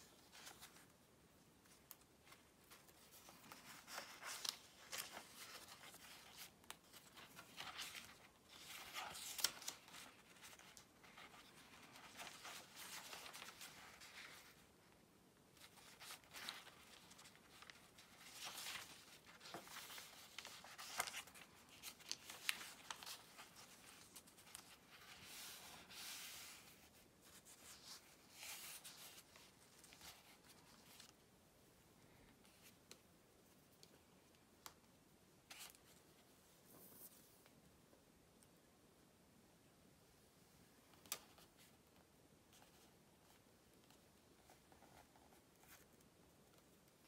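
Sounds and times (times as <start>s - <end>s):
paper rustling and crinkling: 0.0s - 1.0s, 1.6s - 14.9s, 15.5s - 31.2s.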